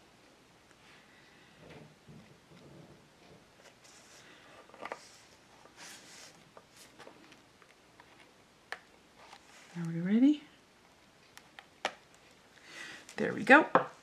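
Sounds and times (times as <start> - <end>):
paper and card rustling: 3.6 - 8.4, 9.1 - 10.1.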